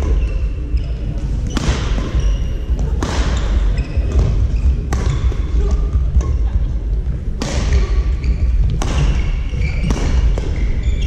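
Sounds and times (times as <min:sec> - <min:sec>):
shoes squeaking on court: 0:00.0 - 0:05.5, 0:07.8 - 0:11.0.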